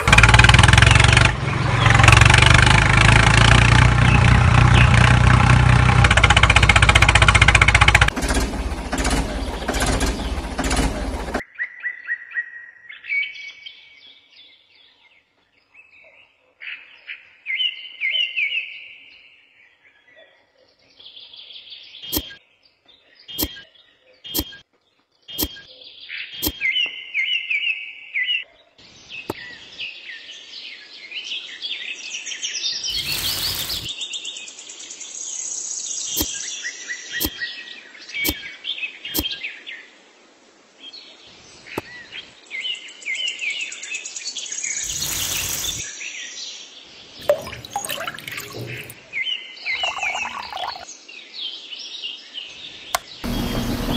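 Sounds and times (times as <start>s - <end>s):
small birds chirping: 17.0s - 39.9s, 40.9s - 53.9s.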